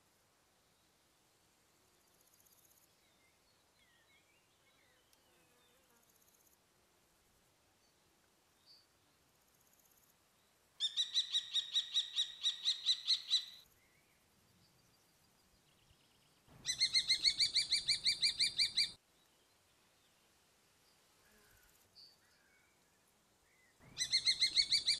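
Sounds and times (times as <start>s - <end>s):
kestrel calling: 10.8s - 13.6s, 16.6s - 19.0s, 23.9s - 24.9s.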